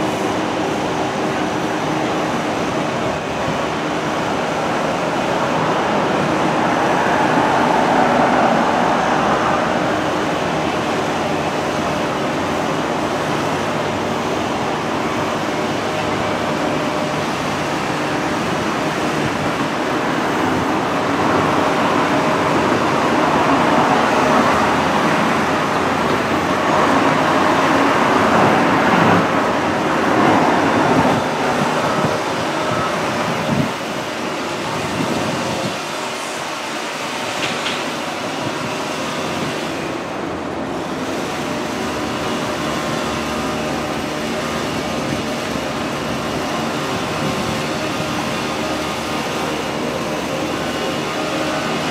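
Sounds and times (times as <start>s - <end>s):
distant excavator engines humming: 0.0s - 51.9s.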